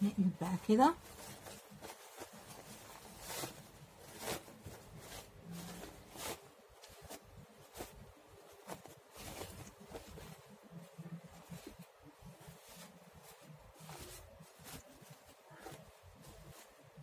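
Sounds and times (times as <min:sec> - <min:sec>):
silky fabric rustling: 0:00.0 - 0:17.0.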